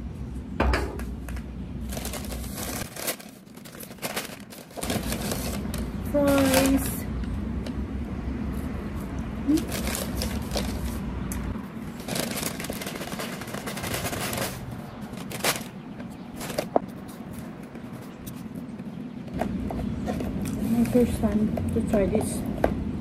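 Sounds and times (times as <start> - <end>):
paper bag rustling: 1.3 - 7.1, 9.5 - 18.6.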